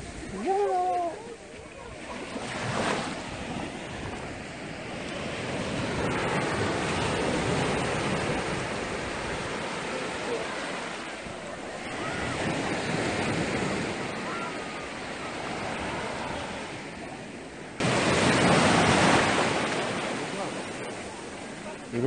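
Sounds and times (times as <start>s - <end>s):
small waves breaking on beach: 0.0s - 22.0s.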